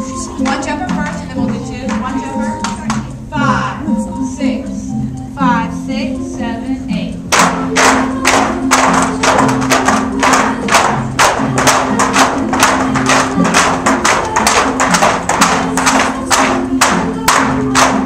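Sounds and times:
music with low melody: 0.0 - 18.0
bamboo poles knocking: 7.4 - 18.0.

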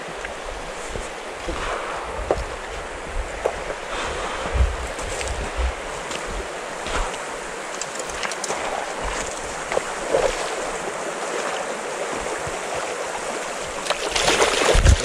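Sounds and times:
water rushing over stones: 0.0 - 15.0
faint clicks: 7.0 - 9.9.

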